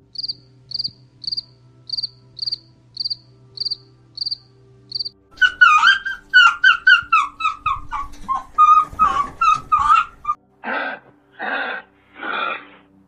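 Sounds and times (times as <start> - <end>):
fox yelping: 4.9 - 12.8
breathy huffs: 10.6 - 13.0.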